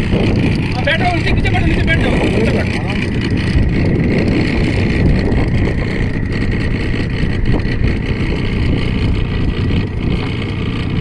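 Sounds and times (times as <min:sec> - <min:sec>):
boat motor running: 0:00.0 - 0:11.0
wind buffeting microphone: 0:00.0 - 0:11.0.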